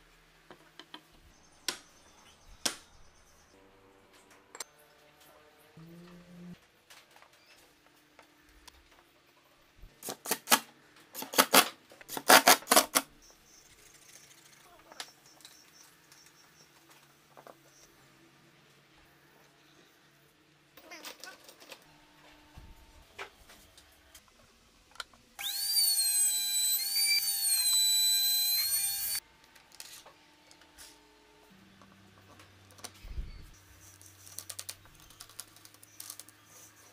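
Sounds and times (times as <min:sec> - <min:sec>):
circular saw cutting plywood: 0:25.4 - 0:29.2.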